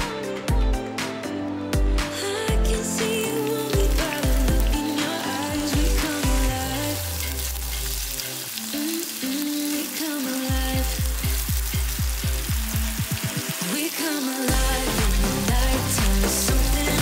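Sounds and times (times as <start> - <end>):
bacon sizzling in hot oil: 3.4 - 17.0.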